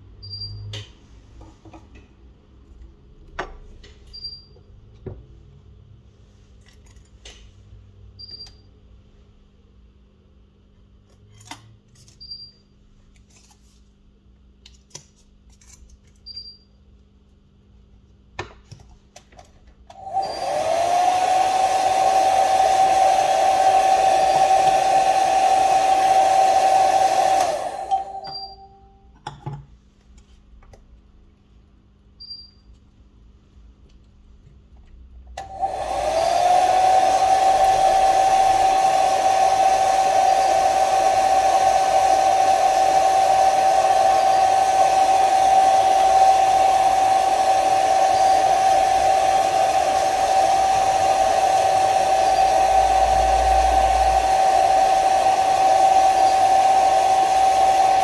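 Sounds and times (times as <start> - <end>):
hot-air blower fan whining: 19.9 - 29.0, 35.4 - 58.0.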